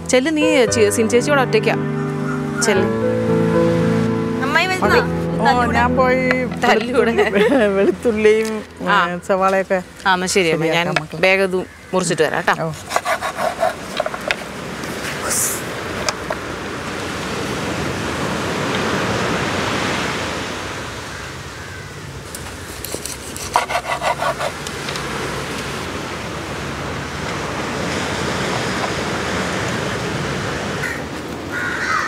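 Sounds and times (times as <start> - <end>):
knife chopping on wooden board: 12.8 - 14.3
sea surf rushing: 13.5 - 22.9, 23.5 - 31.9.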